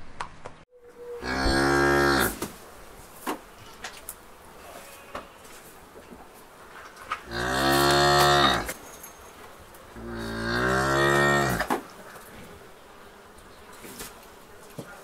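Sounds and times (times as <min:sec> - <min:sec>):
cattle mooing: 0:01.0 - 0:02.4, 0:07.2 - 0:08.8, 0:10.0 - 0:11.7.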